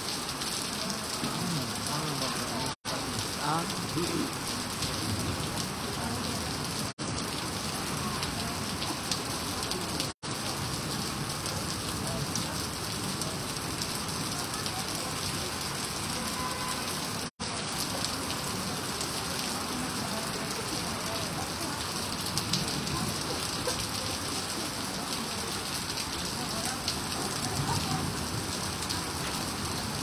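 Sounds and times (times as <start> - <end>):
heavy rain splashing into water: 0.0 - 30.0.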